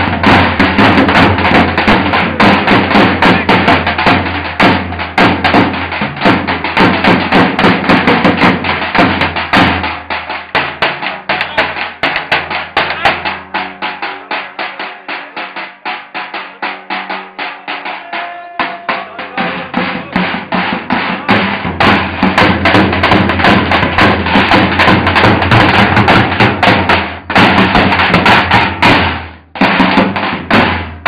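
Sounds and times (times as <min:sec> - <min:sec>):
bass drums beaten fast: 0:00.0 - 0:31.0.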